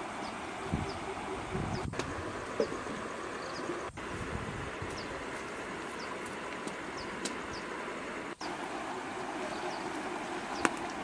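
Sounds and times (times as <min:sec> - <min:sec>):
rushing outdoor background noise: 0:00.0 - 0:11.0.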